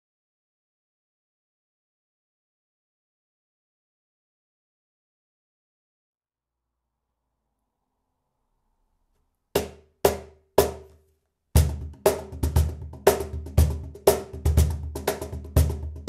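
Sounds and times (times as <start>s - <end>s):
cajon played by hand: 11.6s - 16.0s.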